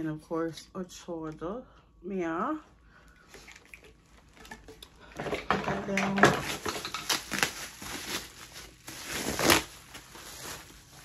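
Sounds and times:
packaging rustling and crinkling: 3.5s - 11.0s.

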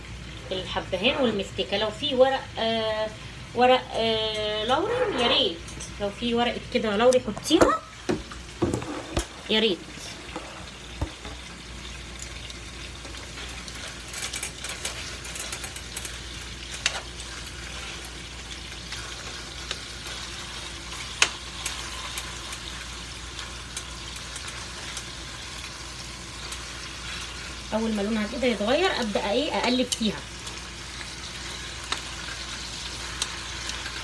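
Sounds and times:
meat sizzling in butter: 4.6s - 34.0s.

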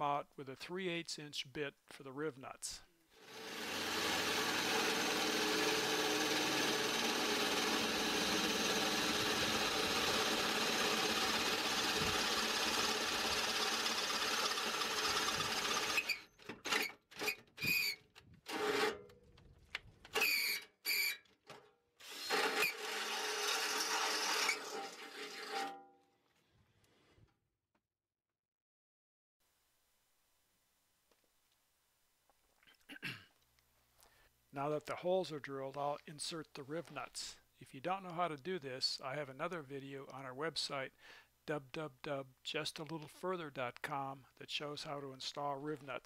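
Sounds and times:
electric drill drilling sheet steel: 3.1s - 19.0s, 20.2s - 21.2s, 22.0s - 25.7s.

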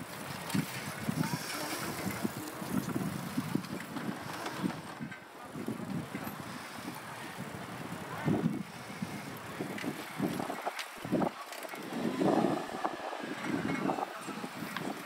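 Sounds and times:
faint street noise: 0.0s - 15.0s
wind buffeting microphone: 0.0s - 15.0s.

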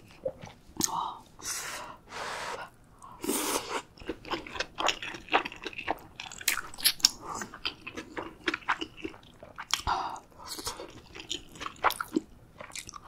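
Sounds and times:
wet chewing mouth sounds: 4.0s - 13.0s.

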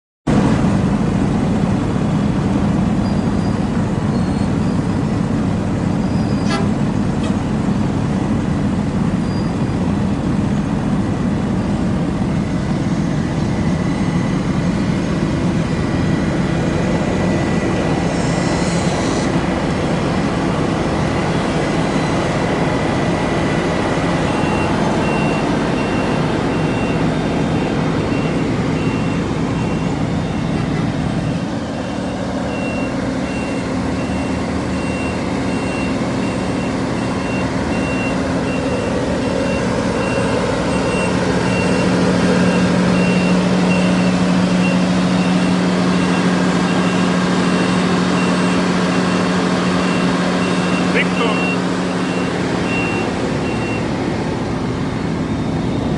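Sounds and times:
diesel engine running: 0.3s - 55.9s
warning alarm beeping: 31.2s - 53.9s.

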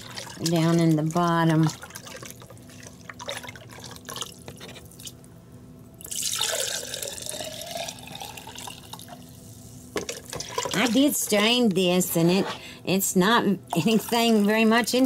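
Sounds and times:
broth pouring into glass jar: 6.0s - 9.2s.

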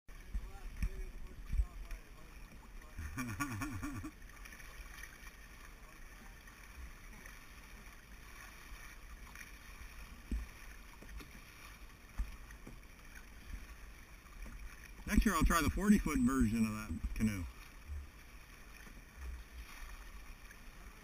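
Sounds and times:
water rushing past hull: 0.1s - 21.0s.

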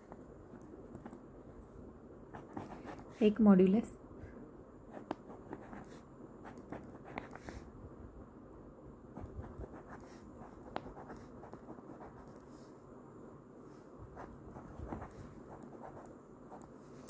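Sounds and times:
pen scratching on paper: 2.4s - 3.1s, 5.0s - 7.6s, 9.2s - 12.5s, 14.2s - 16.6s.

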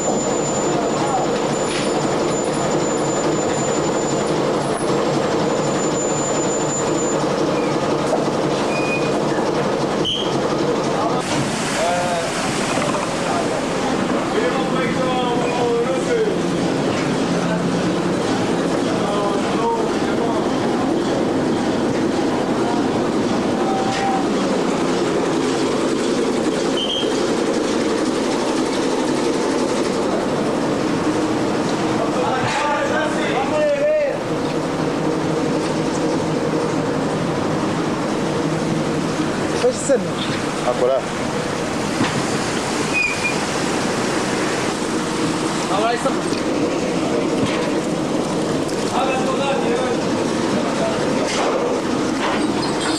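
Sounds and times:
boat engine drone: 0.0s - 52.9s
short squeaks: 8.6s - 9.2s, 10.0s - 10.4s, 26.7s - 27.2s, 42.9s - 43.4s.

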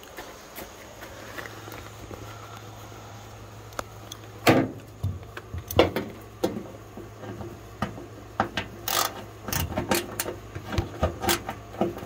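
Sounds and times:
hand ratchet clicking: 8.8s - 10.3s.

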